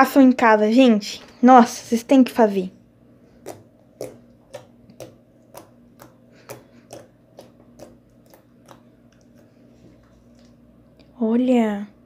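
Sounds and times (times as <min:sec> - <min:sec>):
slime popping while kneaded: 0:03.4 - 0:09.5.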